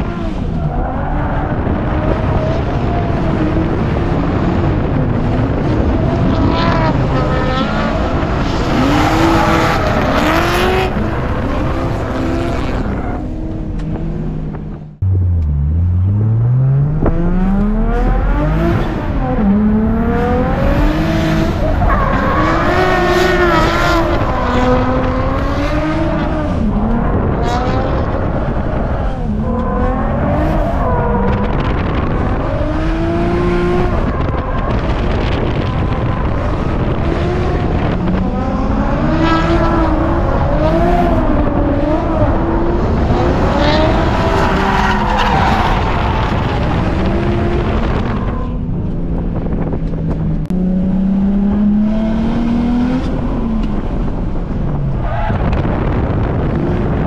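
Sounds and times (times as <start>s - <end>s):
car engine revving: 0.0s - 57.0s
tyres squealing and skidding: 43.8s - 47.1s.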